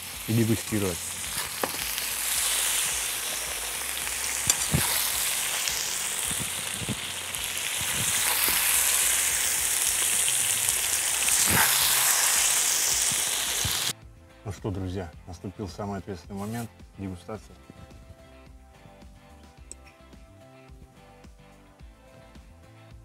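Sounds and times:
food sizzling in a pot: 0.0 - 14.0.

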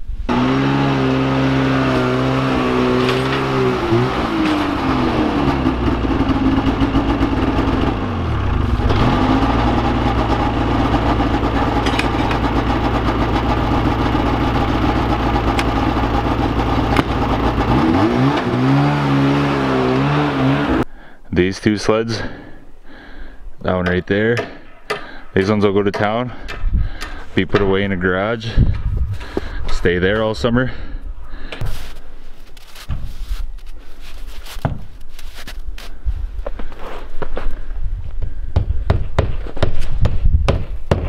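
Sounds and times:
snowmobile engine running: 0.3 - 20.8.

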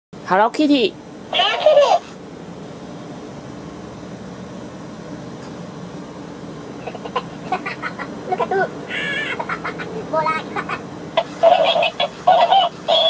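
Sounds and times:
steady low hum: 0.2 - 13.0
squeaky voice-like sounds: 11.2 - 13.0.

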